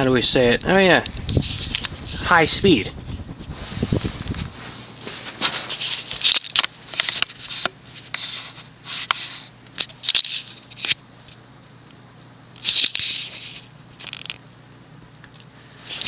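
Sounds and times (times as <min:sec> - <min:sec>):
ceiling fan motor hum: 0:00.0 - 0:16.0
short rustling hiss bursts: 0:01.1 - 0:06.3.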